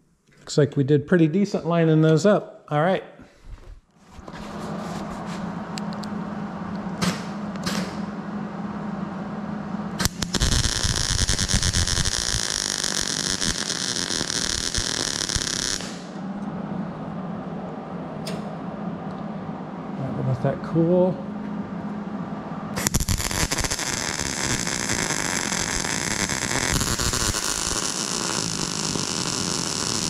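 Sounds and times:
steady low hum: 0.0 - 30.0
welder arc crackling: 10.0 - 16.2, 22.8 - 30.0.

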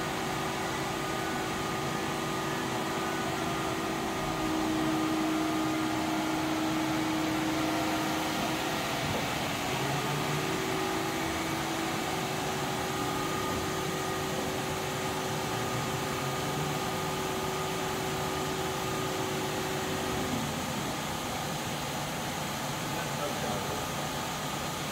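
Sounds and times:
machine running: 0.0 - 24.8
faint machine whine: 0.0 - 24.9.

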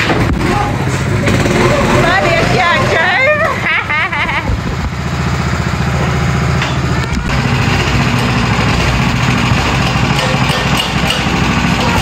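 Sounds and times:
small engine running: 0.1 - 12.0.

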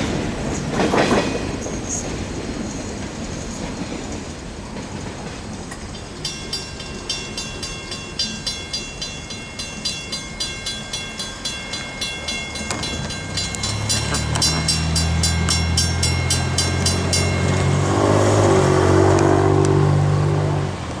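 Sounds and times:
railroad crossing bell ringing: 5.8 - 19.2.

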